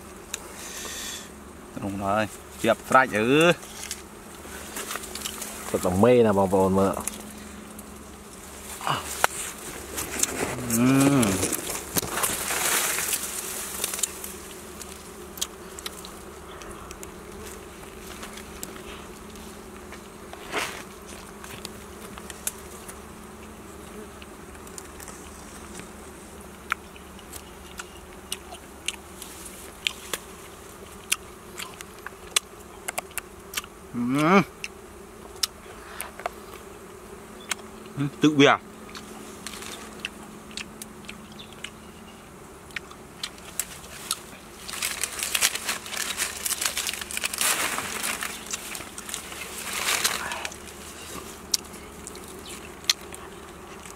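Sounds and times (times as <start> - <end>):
bees buzzing: 0.0 - 53.9
small chewing clicks: 3.8 - 5.5, 13.1 - 17.4, 26.5 - 33.8, 34.6 - 38.0, 38.8 - 42.0, 42.6 - 47.3, 51.5 - 53.9.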